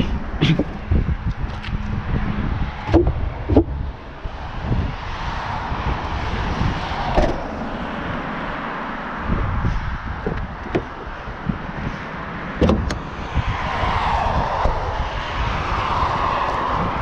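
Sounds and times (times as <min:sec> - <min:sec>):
steady rushing noise: 0:00.0 - 0:17.0
car boot knocks: 0:02.9 - 0:03.8, 0:10.2 - 0:11.1, 0:12.6 - 0:13.0.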